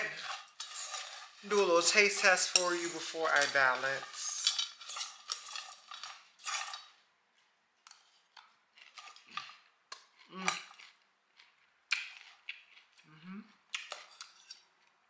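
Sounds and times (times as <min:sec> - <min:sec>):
fork scraping in bowl: 0:00.0 - 0:06.9, 0:13.8 - 0:14.7.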